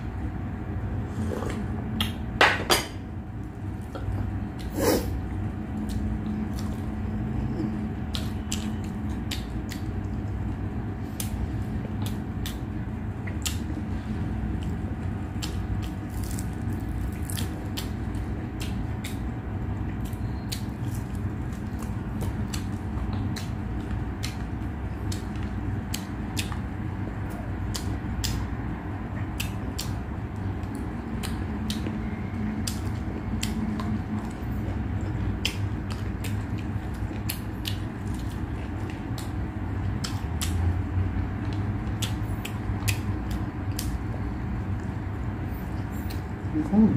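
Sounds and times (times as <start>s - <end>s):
steady low hum: 0.0s - 46.9s
chewing with crunchy clicks: 14.5s - 28.6s, 29.2s - 45.1s.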